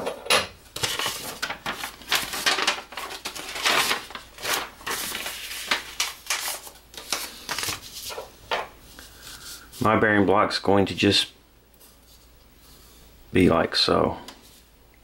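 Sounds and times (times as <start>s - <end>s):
paper rustling and crinkling: 0.8s - 9.8s.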